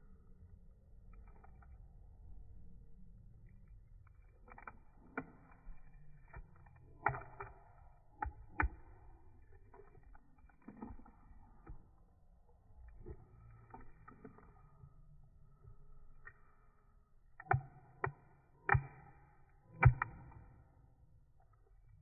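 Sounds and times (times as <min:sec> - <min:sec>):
dog chewing a crunchy snack: 0:04.0 - 0:12.0
dog mouth smacks: 0:04.0 - 0:12.1, 0:12.8 - 0:14.6.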